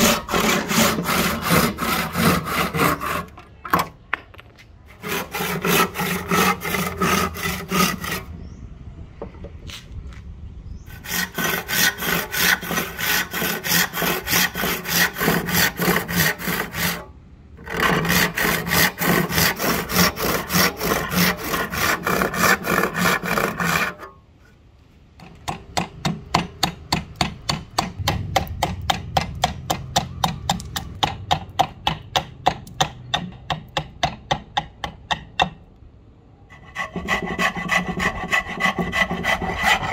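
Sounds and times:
blade shaving wood: 0.0 - 3.4, 4.9 - 8.3, 10.9 - 24.2, 36.5 - 39.9
hand saw cutting wood: 0.0 - 3.4, 4.9 - 8.3, 10.9 - 24.2, 36.5 - 39.9.

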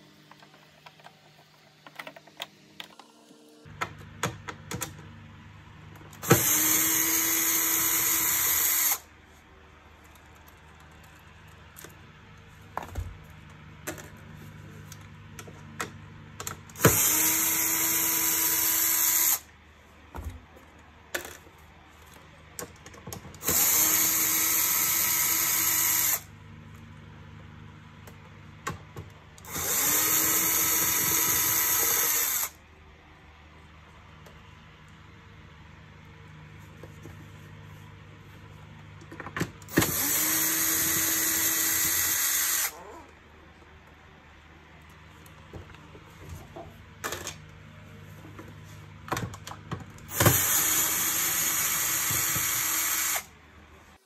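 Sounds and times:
cordless drill running: 6.2 - 9.1, 16.8 - 19.5, 23.4 - 26.3, 29.4 - 32.6, 39.7 - 42.9, 50.1 - 53.4.

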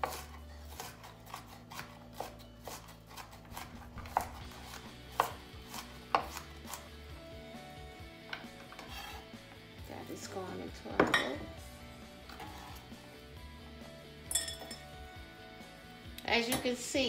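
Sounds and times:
knife chopping on cutting board: 0.0 - 6.9, 8.3 - 9.2.

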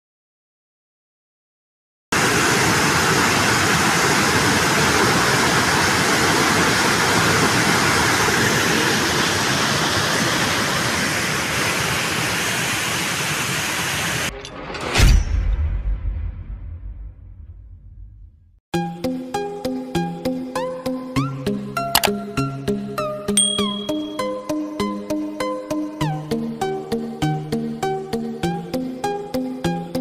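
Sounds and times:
water rushing through spillway: 2.2 - 14.3.

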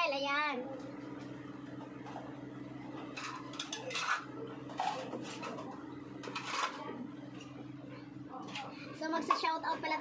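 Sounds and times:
low electrical hum: 0.0 - 10.0
tableware clinking: 3.1 - 5.6.

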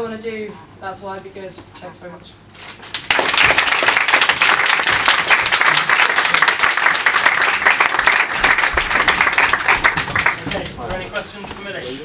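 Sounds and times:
crowd applauding: 2.9 - 11.1.

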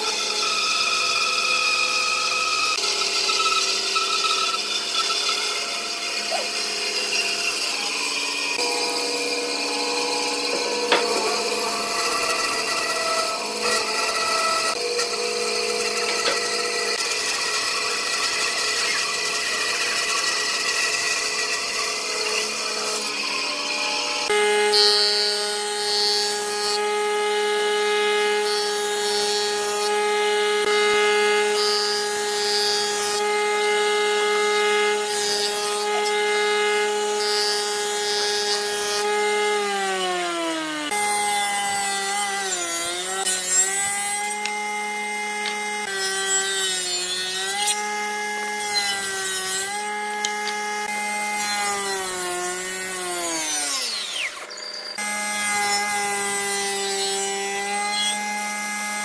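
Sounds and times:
electric jointer whining: 0.0 - 59.0.

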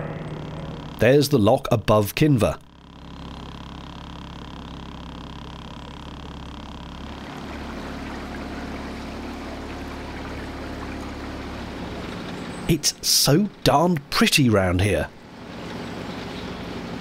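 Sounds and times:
boat motor running: 0.0 - 17.0.

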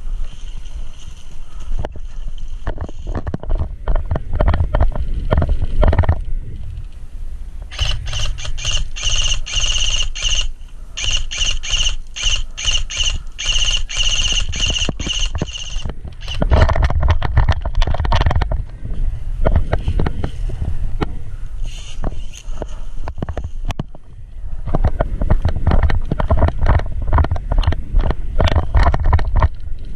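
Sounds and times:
airsoft gun firing in bursts: 7.7 - 16.5.

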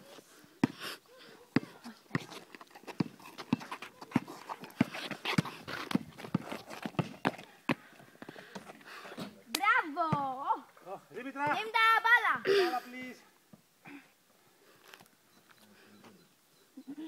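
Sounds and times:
basketball bouncing on asphalt: 1.6 - 8.8
shoe scuffs and footsteps: 1.6 - 9.4.

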